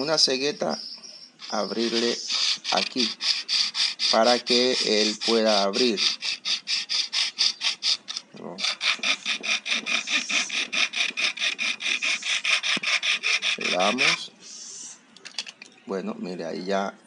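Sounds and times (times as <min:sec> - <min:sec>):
hacksaw rasping through plastic: 0:01.4 - 0:14.2.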